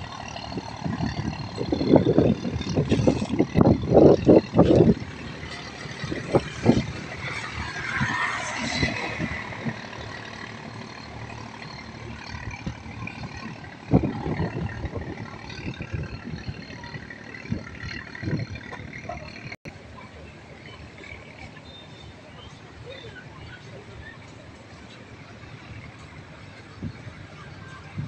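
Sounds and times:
distant engine drone: 0.0s - 28.0s
outdoor background noise: 0.0s - 28.0s.

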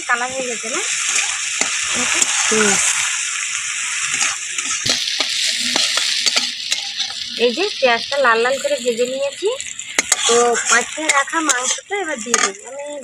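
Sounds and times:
onions sizzling in oil: 0.0s - 13.0s
metal spatula scraping pan: 4.0s - 7.3s, 10.0s - 12.7s.

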